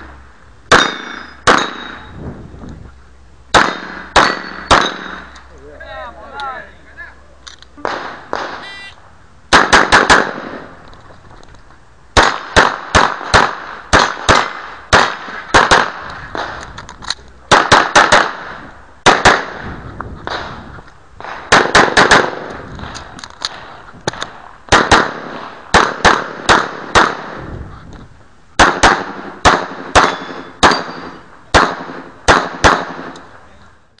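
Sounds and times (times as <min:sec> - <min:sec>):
handgun shots: 0:00.7 - 0:02.0, 0:03.5 - 0:05.2, 0:09.5 - 0:10.6, 0:28.6 - 0:33.2.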